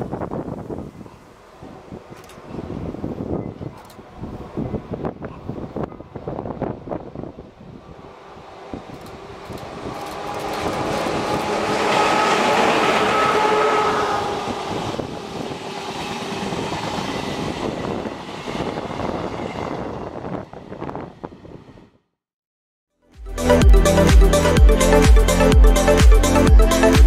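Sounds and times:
steady locomotive tone: 0.0 - 22.0
train rumbling past: 0.0 - 22.0
train wheel clicks: 8.9 - 11.7.

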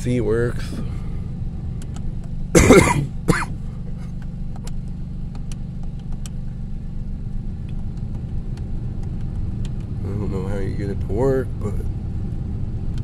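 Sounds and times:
car engine idling: 0.0 - 13.0
throat-clear: 2.6 - 3.5
person coughing: 2.6 - 3.6.

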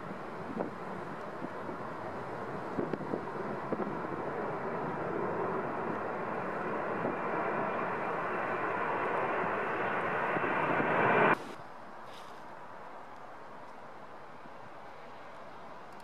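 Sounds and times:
jet engines rushing overhead: 0.0 - 11.6.

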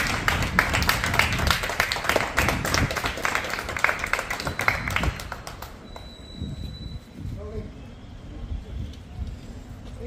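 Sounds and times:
people clapping: 0.0 - 6.2.

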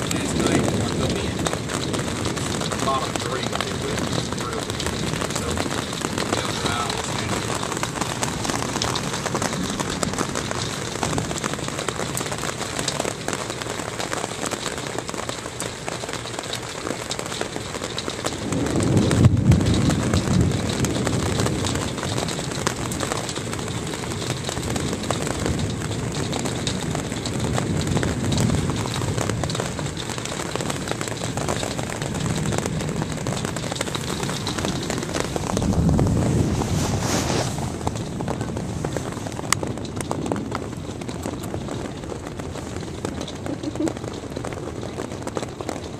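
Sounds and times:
hail and rain on a roof: 0.0 - 45.9
low rumble: 18.3 - 45.8.

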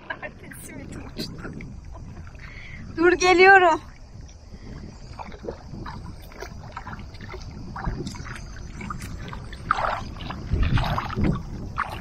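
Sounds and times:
water lapping and splashing: 0.0 - 12.0
wind rumble on microphone: 0.0 - 12.0.

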